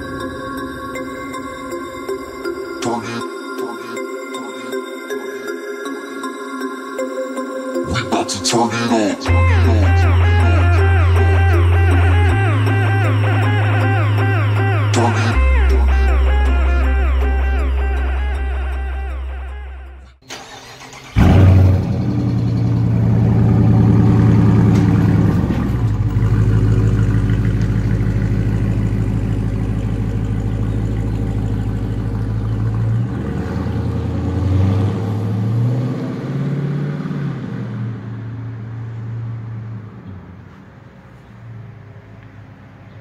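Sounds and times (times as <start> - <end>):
car engine starting and idling: 7.7 - 42.2
car pulling away: 20.3 - 43.0.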